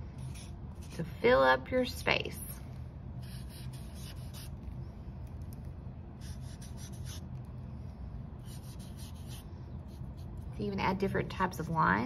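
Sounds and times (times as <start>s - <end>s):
low hum: 0.0s - 12.0s
marker scratching on paper: 0.2s - 1.0s, 3.2s - 4.5s, 6.2s - 7.2s, 8.4s - 10.4s.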